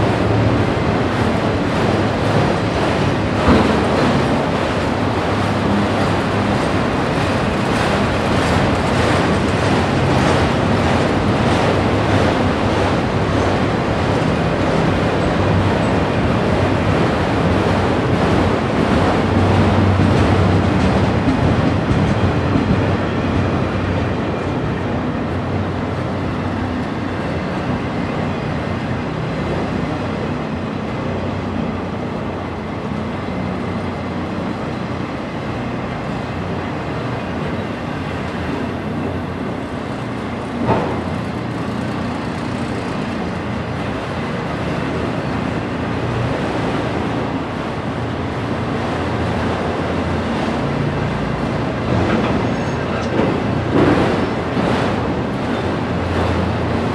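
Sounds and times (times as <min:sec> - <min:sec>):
train clank: 0:00.0 - 0:24.8, 0:35.9 - 0:45.4, 0:48.7 - 0:56.9
train car rattle: 0:00.0 - 0:56.9
train wheels on rails: 0:00.0 - 0:56.9.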